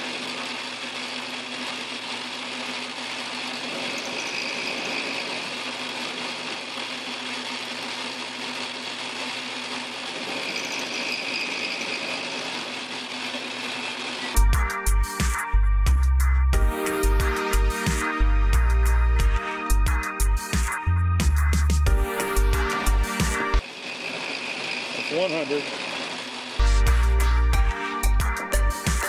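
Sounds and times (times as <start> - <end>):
cutter hissing through metal: 0.0 - 14.4, 22.7 - 26.7
lathe motor humming: 0.0 - 14.4, 21.9 - 28.4
high cutting whine: 0.0 - 16.0, 16.6 - 29.0.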